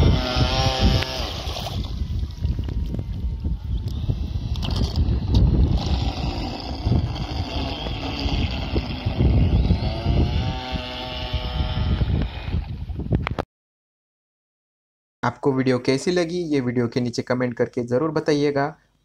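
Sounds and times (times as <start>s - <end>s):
motor and propeller whine: 0.0s - 13.1s
wind rumble on microphone: 0.0s - 13.4s.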